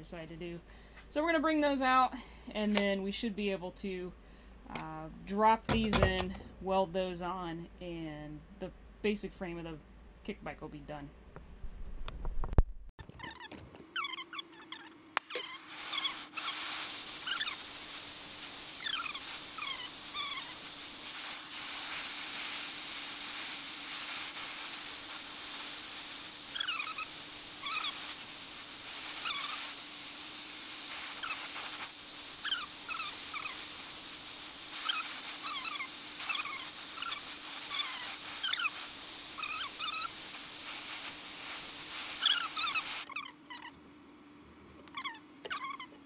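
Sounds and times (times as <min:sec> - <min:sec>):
high squeaky whines: 0:13.0 - 0:21.4, 0:26.5 - 0:28.2, 0:29.0 - 0:29.7, 0:30.9 - 0:33.7, 0:34.8 - 0:40.2, 0:42.2 - 0:43.8
gas torch hissing: 0:15.2 - 0:43.1.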